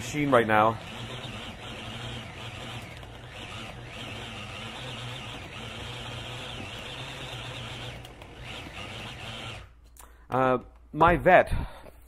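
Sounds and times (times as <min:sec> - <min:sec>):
food processor running: 0:00.0 - 0:09.8.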